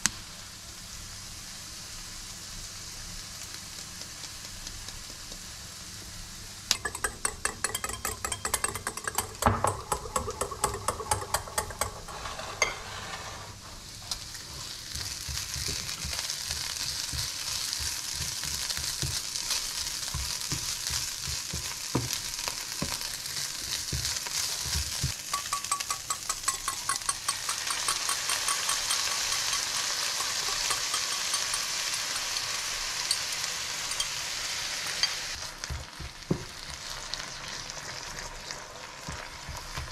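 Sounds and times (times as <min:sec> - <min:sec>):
meat sizzling in frying pan: 0:00.0 - 0:39.9
utensil clicking against bowl: 0:06.7 - 0:12.1, 0:25.3 - 0:32.2
spatula scraping pan: 0:06.7 - 0:34.1.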